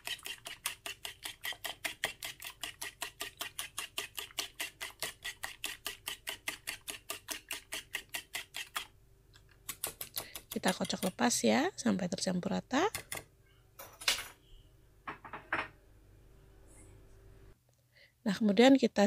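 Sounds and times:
whisk clicking against bowl: 0.0 - 8.9, 9.7 - 11.2.

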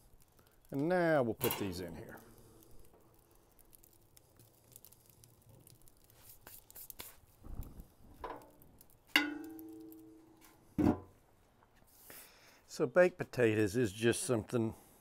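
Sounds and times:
lid thump: 10.8 - 11.1.

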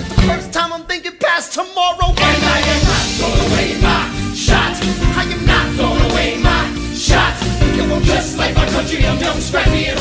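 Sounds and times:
hip-hop musical theatre song: 0.0 - 10.0
steady drum beat: 2.0 - 10.0.

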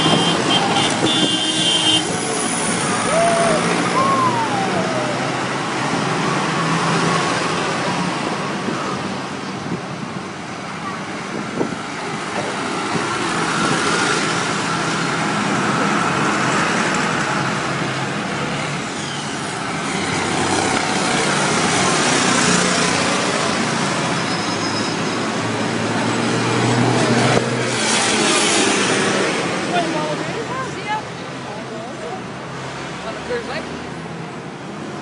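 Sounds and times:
tractor diesel engines passing: 0.0 - 35.0.

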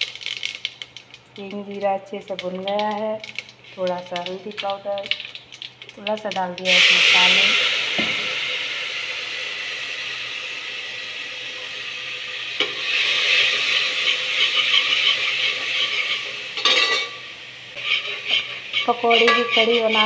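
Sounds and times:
hot oil spitting and sizzling: 0.0 - 20.0
metal ladle scraping a pot: 13.0 - 17.2, 17.8 - 20.0.

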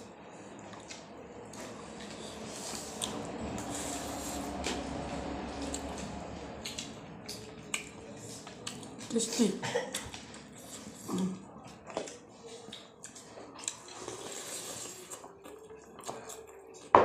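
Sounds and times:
chewing: 5.6 - 9.1, 9.9 - 16.9.

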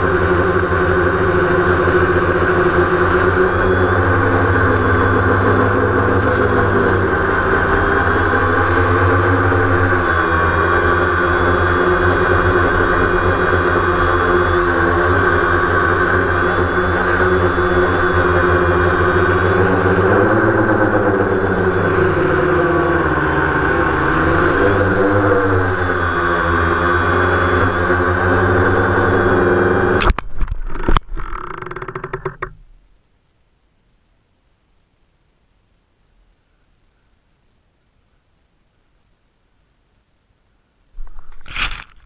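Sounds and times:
drone propellers buzzing: 0.0 - 32.6.

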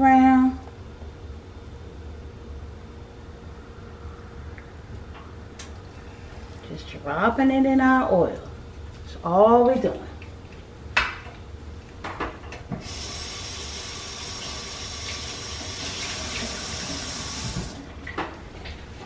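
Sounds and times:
water running from tap: 12.8 - 17.9.

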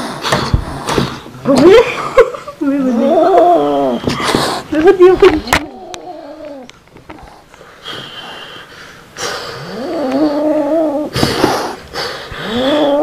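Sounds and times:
cat hissing: 2.8 - 4.7, 9.2 - 13.0
cat yowling: 12.4 - 13.0.

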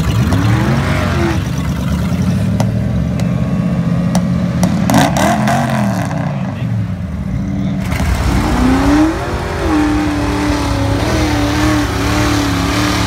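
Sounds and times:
engine revving: 0.0 - 2.7, 4.1 - 6.7, 7.4 - 13.0
truck engine idling loudly: 1.4 - 4.0.

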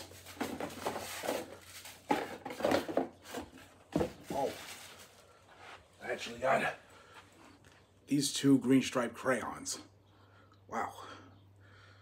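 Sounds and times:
plastic packaging crinkling: 0.0 - 3.4, 4.1 - 5.4.

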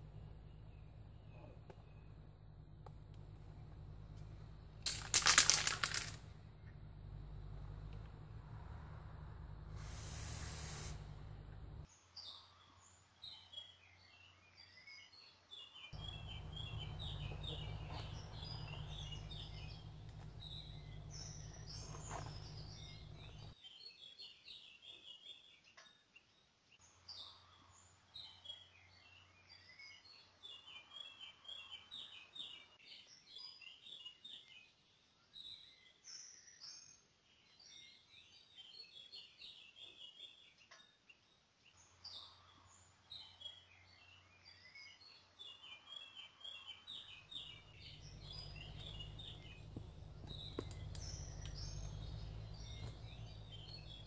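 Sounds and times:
low rumble: 0.0 - 5.0, 5.7 - 11.9, 16.0 - 23.5, 47.4 - 54.0
woodland birds singing: 0.0 - 26.2, 26.8 - 54.0
brief hiss: 9.7 - 11.3.

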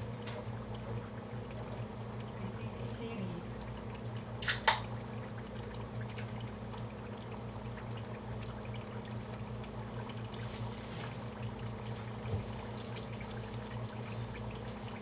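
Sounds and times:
potatoes frying in oil: 2.4 - 3.5.

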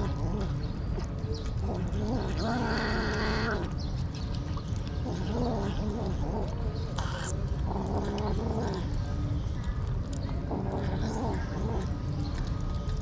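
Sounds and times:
cat low wavering calls: 0.0 - 3.8, 5.0 - 9.2
cats chewing wet food: 0.0 - 13.0.

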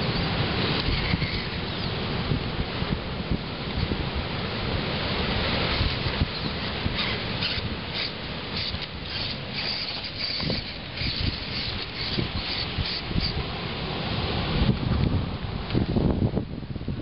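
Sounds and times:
wind buffeting microphone: 0.0 - 17.0
small electric motor whirring: 5.7 - 13.4.

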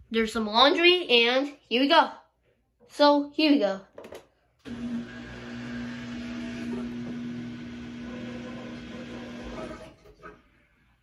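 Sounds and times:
washing machine hum: 4.6 - 10.6.

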